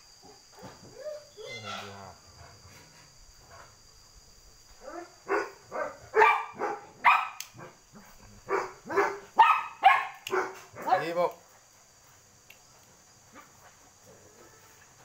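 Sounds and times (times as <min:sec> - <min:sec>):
dog barking: 0:04.8 - 0:07.8, 0:08.4 - 0:11.1.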